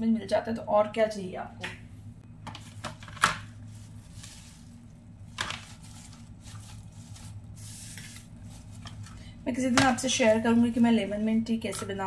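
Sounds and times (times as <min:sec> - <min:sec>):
steady low hum: 0:00.0 - 0:12.0
mint leaves rustling: 0:03.7 - 0:04.8.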